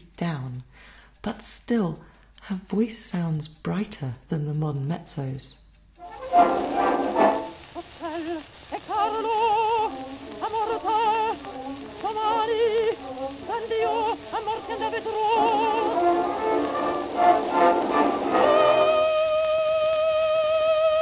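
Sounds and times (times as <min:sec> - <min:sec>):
woman singing opera: 0:07.8 - 0:21.0.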